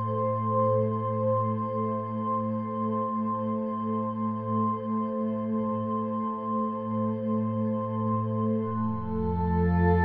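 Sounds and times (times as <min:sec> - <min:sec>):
ambient music with bell-like chords: 0:08.4 - 0:10.0.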